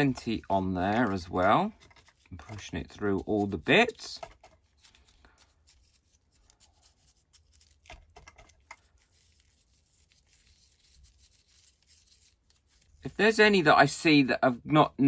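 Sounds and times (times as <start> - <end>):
paintbrush scratching and tapping: 0.0 - 13.4.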